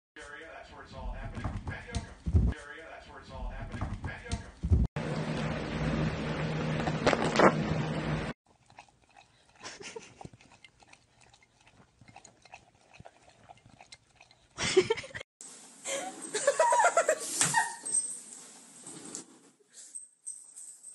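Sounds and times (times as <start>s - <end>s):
dog lapping water from a glass: 8.5s - 14.6s.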